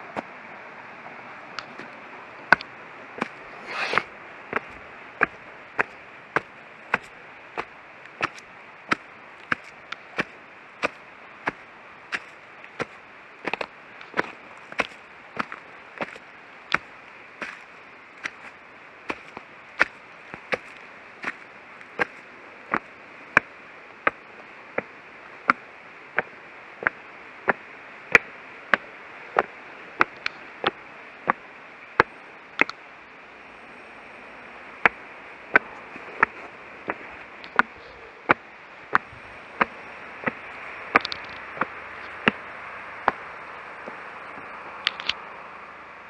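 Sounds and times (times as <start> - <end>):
steady hiss: 0.0 - 46.0
footsteps on stone steps: 1.6 - 24.2, 26.2 - 27.6, 29.4 - 31.4, 32.0 - 32.8, 34.8 - 42.4, 43.1 - 45.2.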